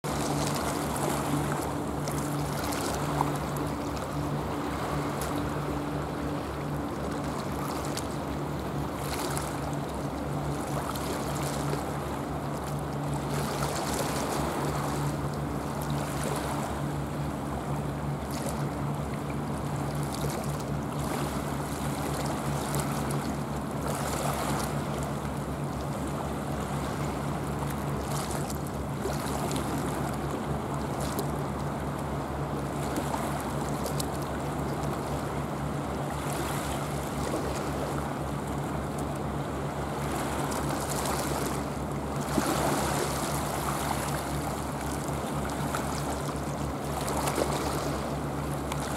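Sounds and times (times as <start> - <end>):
sea water washing and lapping: 0.0 - 48.9
steady low hum: 0.0 - 48.9.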